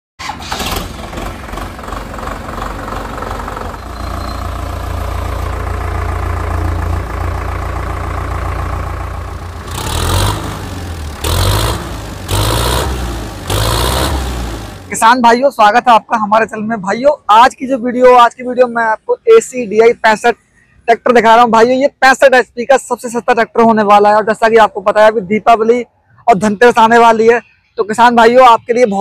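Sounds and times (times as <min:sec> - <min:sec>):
tractor diesel engine idling: 0:00.2 - 0:15.1
tractor engine revving: 0:00.2 - 0:15.2.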